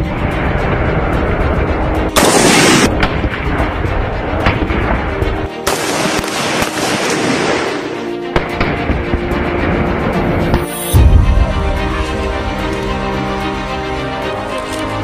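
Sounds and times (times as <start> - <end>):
background music: 0.0 - 15.0
rifle gunfire: 2.2 - 3.2, 5.7 - 8.7.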